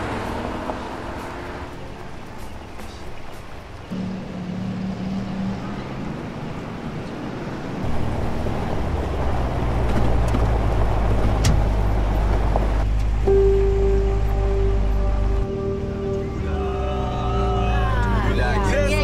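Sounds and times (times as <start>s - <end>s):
car engine and road noise: 0.0s - 19.0s
held musical note: 13.2s - 19.0s.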